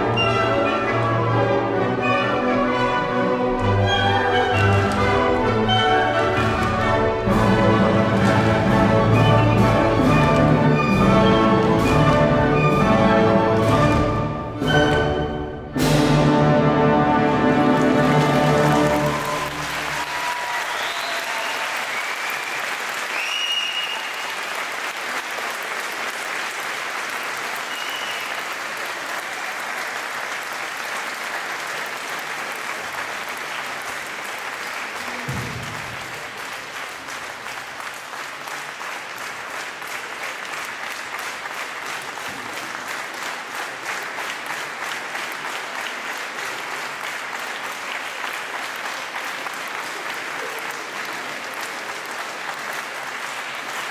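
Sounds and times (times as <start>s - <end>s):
audience applauding: 0.0s - 12.0s, 16.9s - 53.9s.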